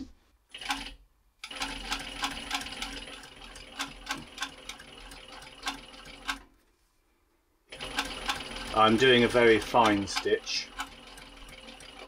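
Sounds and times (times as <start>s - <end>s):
sewing machine motor hum: 0.6s - 6.5s, 7.7s - 12.0s
sewing machine stitch clicks: 7.8s - 12.0s.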